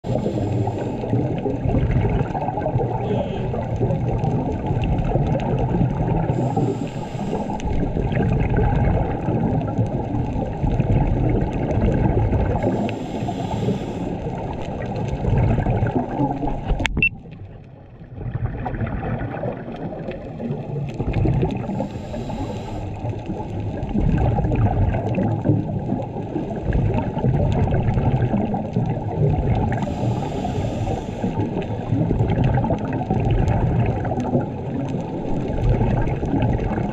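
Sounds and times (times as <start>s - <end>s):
muffled underwater rumble and gurgle: 0.0s - 36.9s
regulator breathing hiss: 0.1s - 1.1s, 6.3s - 7.6s, 12.6s - 14.2s, 21.7s - 23.0s, 29.8s - 31.8s.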